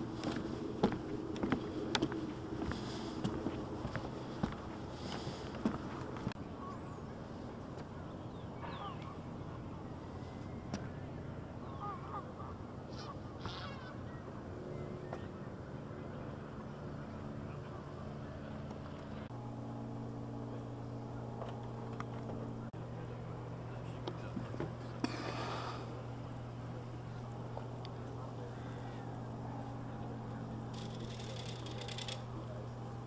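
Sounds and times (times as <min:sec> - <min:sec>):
low engine hum: 0:00.0 - 0:33.0
geese honking: 0:11.6 - 0:14.1.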